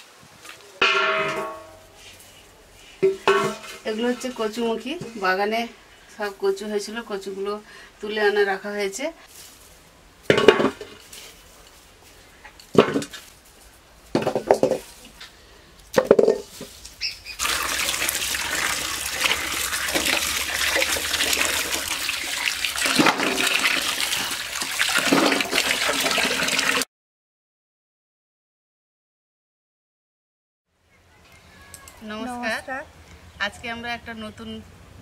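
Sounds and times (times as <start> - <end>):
corms knocking in steel bowl: 0.8 - 2.0
tap water pouring into bowl: 17.4 - 26.8.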